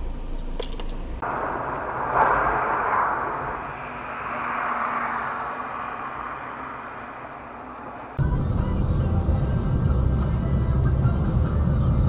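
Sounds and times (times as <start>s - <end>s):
car driving tyres and engine: 0.0s - 12.0s.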